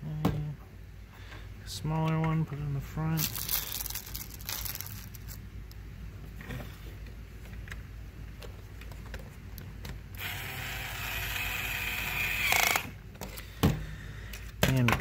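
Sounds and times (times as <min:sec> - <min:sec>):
toy drill motor whirring: 0:10.2 - 0:13.0.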